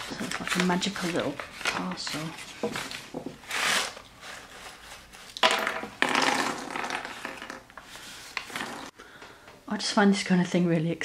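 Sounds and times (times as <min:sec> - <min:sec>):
paper packet rustling: 0:00.0 - 0:05.4
beans rattling onto wooden table: 0:05.4 - 0:07.7, 0:08.4 - 0:08.9.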